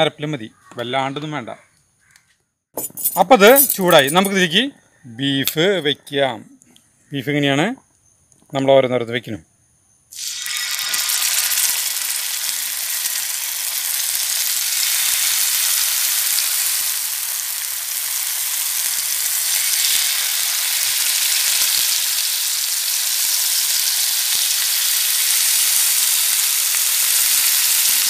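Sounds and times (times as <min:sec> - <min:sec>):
meat sizzling in oil: 0:10.1 - 0:28.0.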